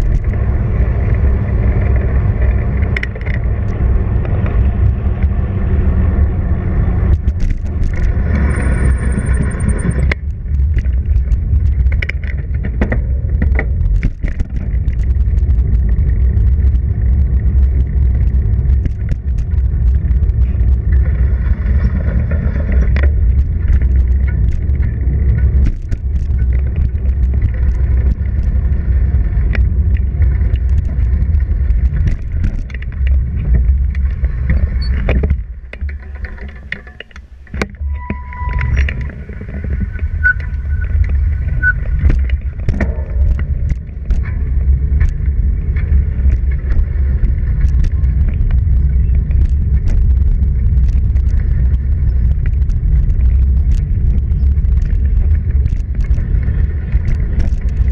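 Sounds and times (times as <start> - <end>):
bicycle clicks and rattles: 0.0 - 37.8, 38.6 - 57.9
wind rumbling on microphone: 0.0 - 57.9
short high squeaks: 37.8 - 42.1.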